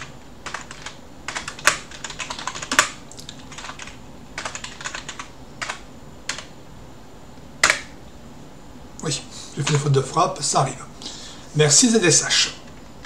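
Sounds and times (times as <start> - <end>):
computer keyboard typing: 0.0 - 6.5, 7.6 - 7.9.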